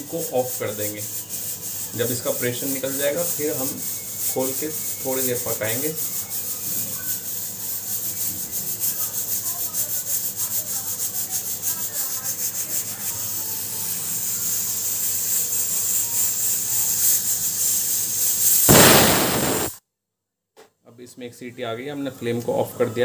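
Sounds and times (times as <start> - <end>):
pressure cooker hissing steam: 0.0 - 19.8
pressure cooker whistle: 1.6 - 7.2, 13.2 - 19.7.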